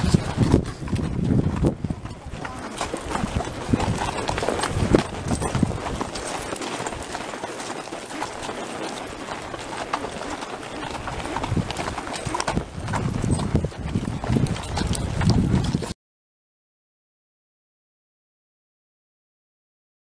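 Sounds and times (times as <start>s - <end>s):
horse hooves on dirt trail: 0.0s - 16.0s.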